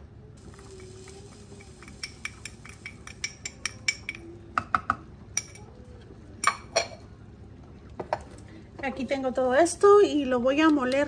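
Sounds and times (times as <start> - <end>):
spoon clinking on containers: 1.6 - 4.3.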